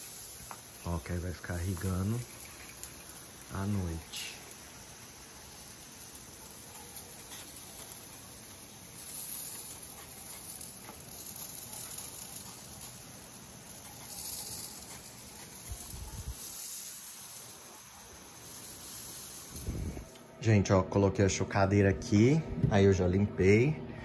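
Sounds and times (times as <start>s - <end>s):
sprinklers spraying water: 0.0s - 20.3s.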